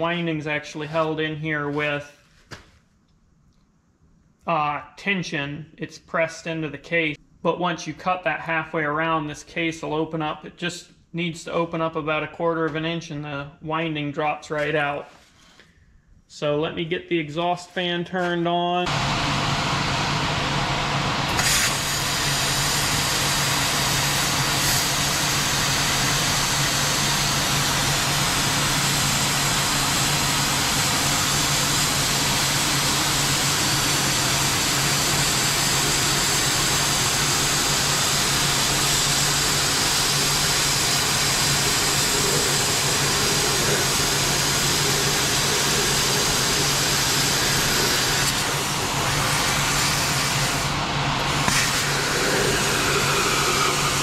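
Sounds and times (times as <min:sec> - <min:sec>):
exhaust fan humming: 0:18.9 - 0:54.0
plasma cutter hissing: 0:21.3 - 0:54.0.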